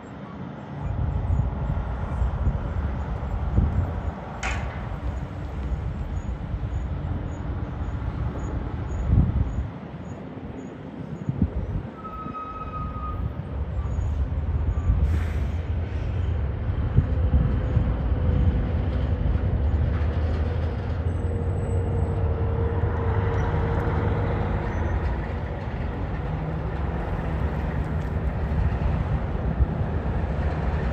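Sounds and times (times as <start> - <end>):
truck diesel engines rumbling: 0.0 - 30.9
brief hiss: 15.0 - 16.0.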